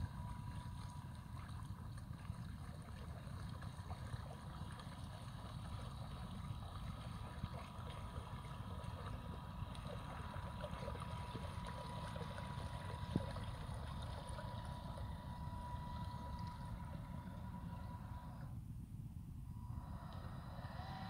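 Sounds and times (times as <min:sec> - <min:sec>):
electric motor whine: 0:00.0 - 0:01.6, 0:06.1 - 0:18.6, 0:19.5 - 0:21.0
hull hissing through water: 0:19.5 - 0:21.0.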